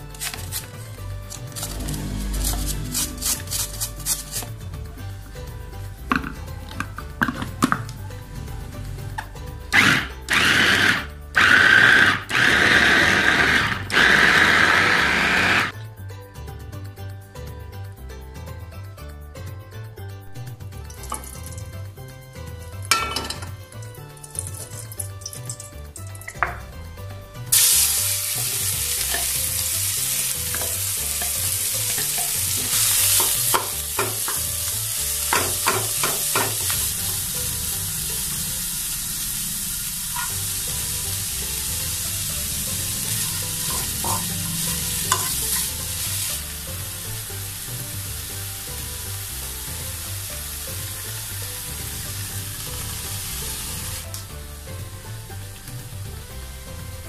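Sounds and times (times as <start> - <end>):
spatula scraping a pan: 0.2 - 4.6, 40.1 - 40.6, 43.2 - 46.0
meat sizzling in hot oil: 9.8 - 15.8, 27.5 - 56.8.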